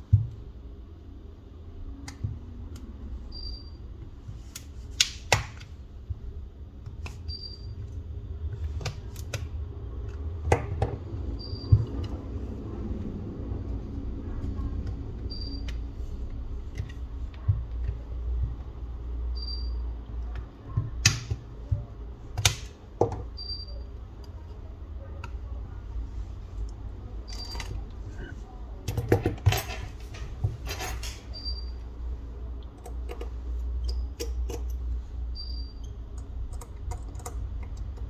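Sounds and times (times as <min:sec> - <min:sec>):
low steady hum: 0:00.0 - 0:38.0
tools clicking and tapping: 0:32.6 - 0:34.8, 0:36.1 - 0:38.0.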